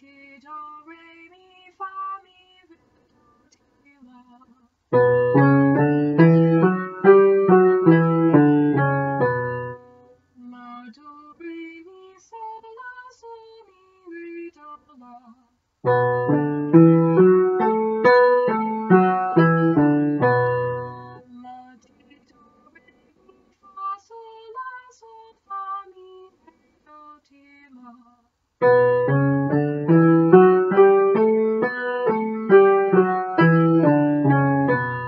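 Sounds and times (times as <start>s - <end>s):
piano chords: 4.9s - 10.0s, 15.8s - 21.2s, 28.6s - 35.0s
quiet piano melody: 4.9s - 10.0s, 15.8s - 21.2s, 28.6s - 35.0s.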